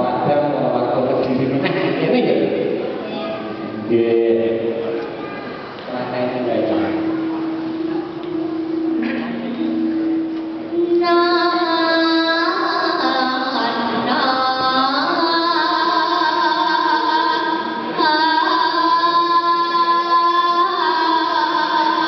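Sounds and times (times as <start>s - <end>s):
low accompanying tone: 0.0s - 22.0s
girl singing into microphone: 10.3s - 22.0s.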